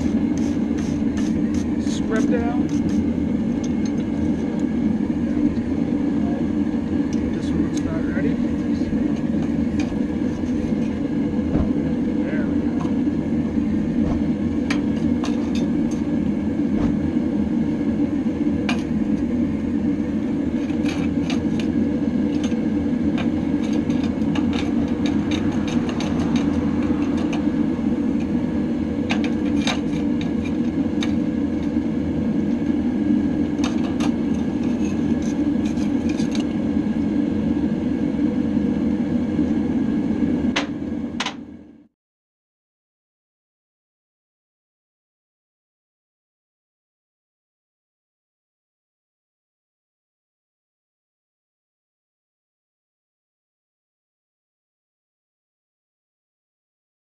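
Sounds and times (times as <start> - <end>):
loud steady machine drone: 0.0 - 41.9.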